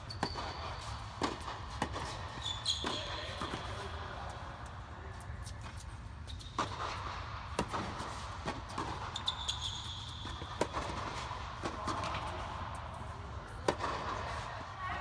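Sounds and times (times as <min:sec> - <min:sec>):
shoe squeak: 0:00.0 - 0:03.9, 0:05.4 - 0:06.8, 0:08.6 - 0:11.0
tennis ball bouncing: 0:00.1 - 0:04.4, 0:05.1 - 0:12.9, 0:13.5 - 0:14.5
racket hitting tennis ball: 0:00.2 - 0:12.9, 0:13.5 - 0:14.5.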